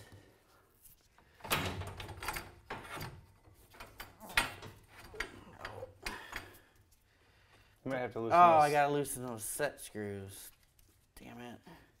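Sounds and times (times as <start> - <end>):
metal clanks and scrapes: 1.8 - 6.0.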